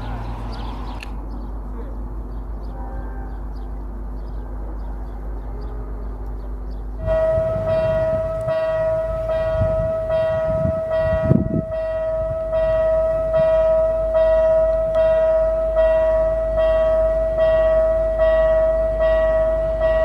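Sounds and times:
low rumble: 6.9 - 14.4
level crossing warning bell: 7.0 - 20.0.

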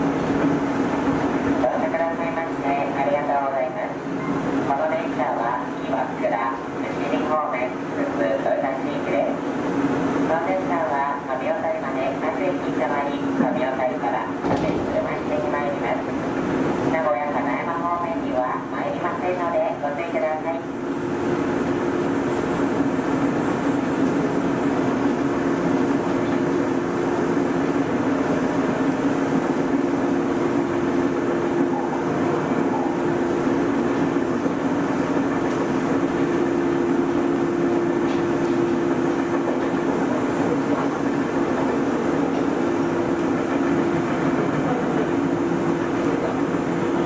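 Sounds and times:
electric train running: 18.6 - 47.0.

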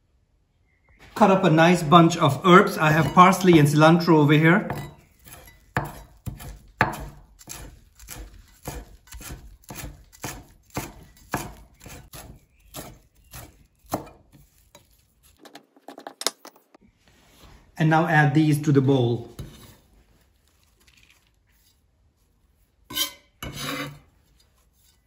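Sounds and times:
knife chopping on wooden board: 2.8 - 3.8, 4.6 - 14.9.

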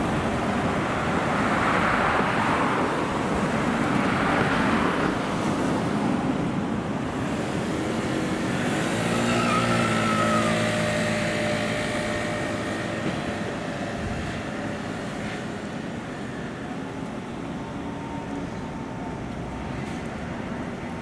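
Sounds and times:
street traffic noise: 0.0 - 21.0
vehicle motor whine: 6.8 - 21.0.

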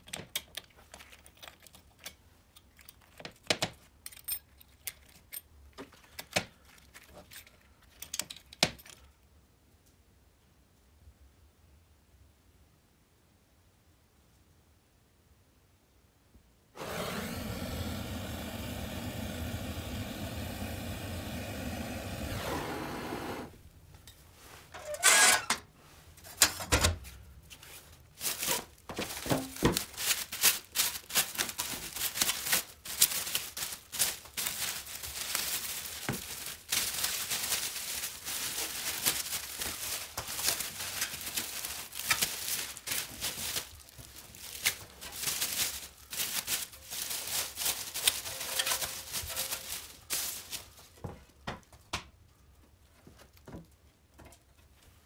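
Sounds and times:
plastic wrap crinkling and tearing: 6.0 - 7.9, 27.6 - 51.1.

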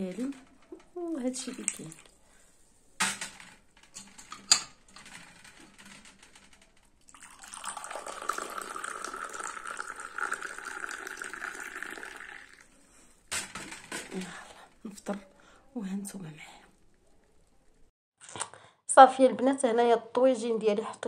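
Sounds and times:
tea pouring into a glass: 7.1 - 12.7.

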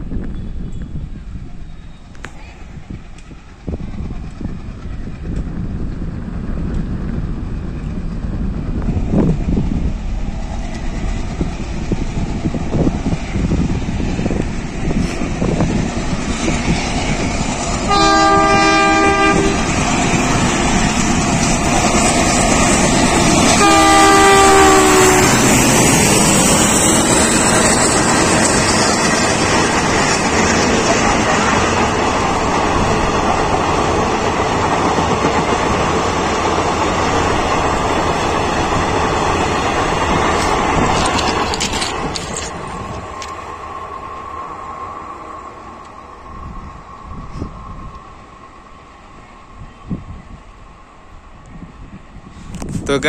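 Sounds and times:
diesel locomotive engine rumble: 0.0 - 53.0
train wheel clatter: 1.6 - 44.0
train horn blasts: 17.8 - 19.8, 23.3 - 26.0.

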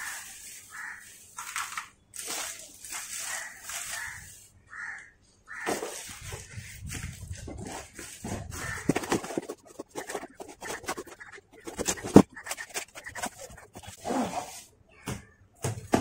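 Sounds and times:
cardboard box flaps scraping: 7.1 - 14.6.

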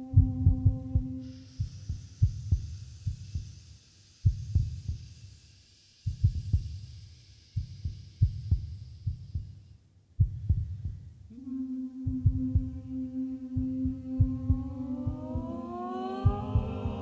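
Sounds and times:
deep heartbeat-like thuds: 0.0 - 3.6, 4.2 - 5.2, 6.1 - 11.3, 12.0 - 17.0
steady held note: 11.3 - 17.0.

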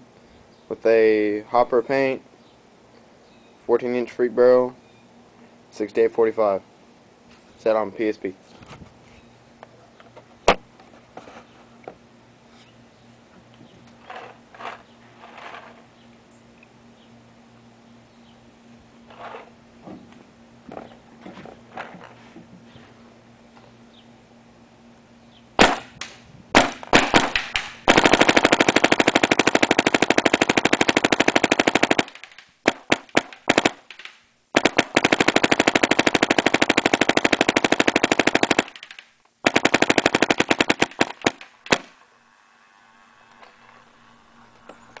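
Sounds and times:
paintball marker firing: 25.6 - 42.0.

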